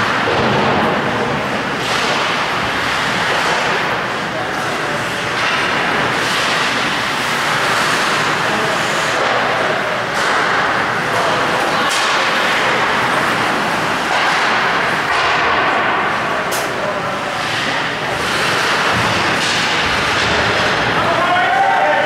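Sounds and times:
skates on ice: 18.2s - 21.4s.

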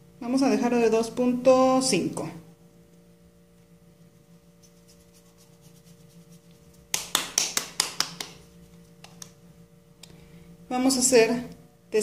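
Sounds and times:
hands rubbing dough: 4.2s - 9.4s
dough slapping against palms: 4.7s - 9.4s.

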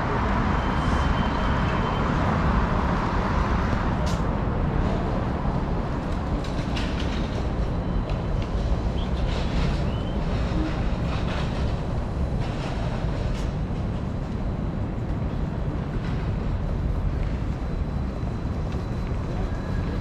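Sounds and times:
traffic rumble: 0.0s - 20.0s.

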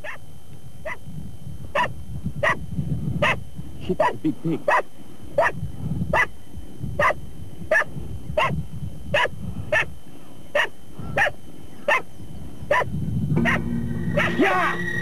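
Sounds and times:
dog barking: 1.8s - 2.6s, 3.2s - 6.3s, 7.0s - 9.9s, 10.5s - 12.1s, 12.7s - 13.6s.

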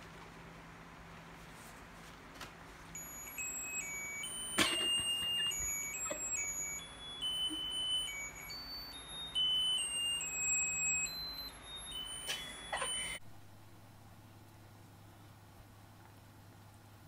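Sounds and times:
tinny beeping tune: 3.0s - 13.2s.

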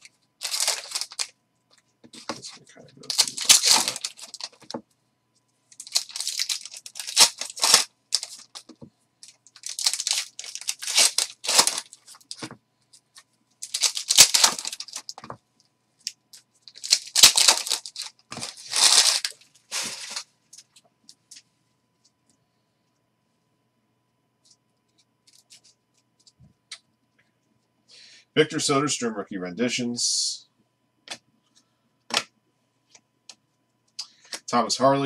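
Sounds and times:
card wrappers torn and crinkling: 0.4s - 1.3s, 2.2s - 4.8s, 5.7s - 12.5s, 13.6s - 15.3s, 16.6s - 20.3s.

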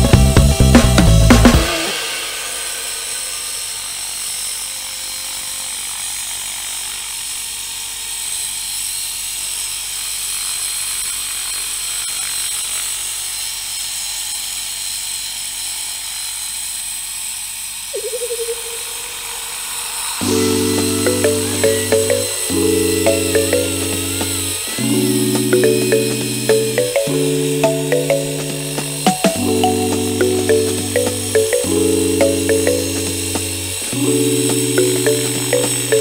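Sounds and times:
rc helicopter whine: 1.6s - 14.7s, 15.5s - 36.0s
short pulsing tone: 18.0s - 31.4s.

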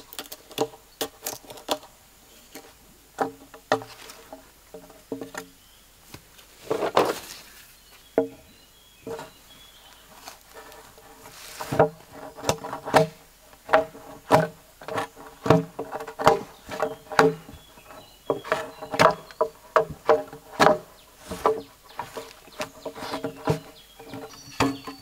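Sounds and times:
chopping strikes on wood: 18.4s - 23.7s.

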